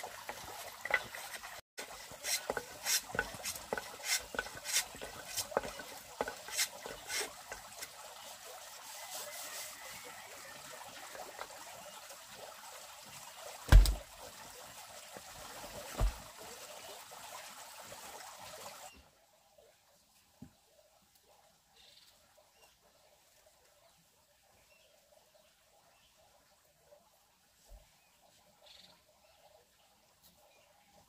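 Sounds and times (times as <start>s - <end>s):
water trickling: 0.0s - 21.9s.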